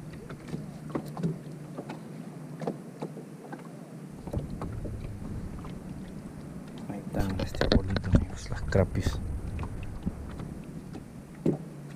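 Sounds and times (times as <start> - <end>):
light wind: 0.0 - 11.9
water noise: 0.0 - 11.9
steady low hum: 3.8 - 11.9.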